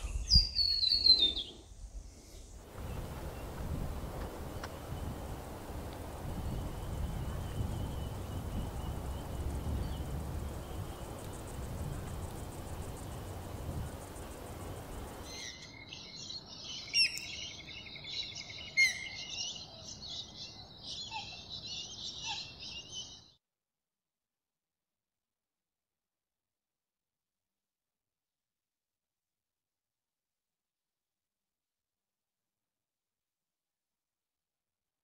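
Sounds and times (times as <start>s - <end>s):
low outdoor background noise: 1.6s - 22.9s
birds chirping and calling: 14.6s - 23.3s.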